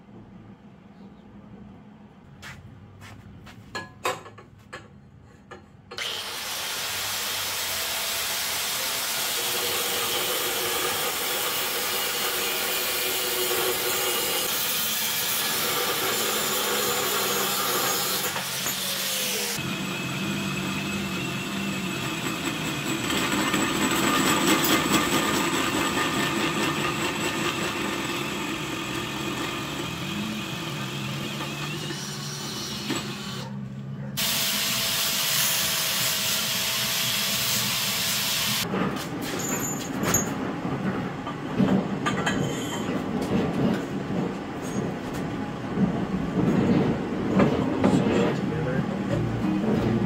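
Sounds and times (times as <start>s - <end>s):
drill hole saw cutting steel: 6.0s - 33.6s, 34.2s - 38.6s.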